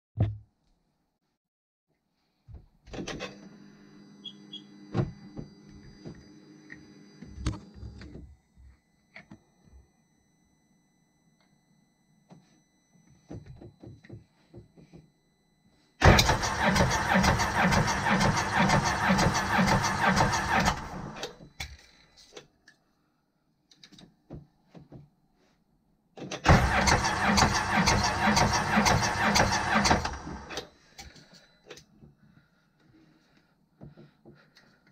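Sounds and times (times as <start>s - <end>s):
electric starter cranking engine: 16.0s - 21.4s, 26.4s - 30.7s.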